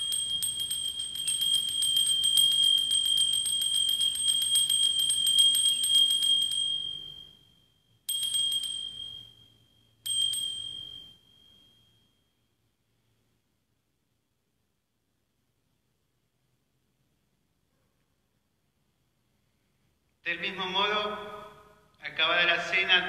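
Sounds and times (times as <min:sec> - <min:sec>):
small bells ringing: 0:00.0 - 0:12.5.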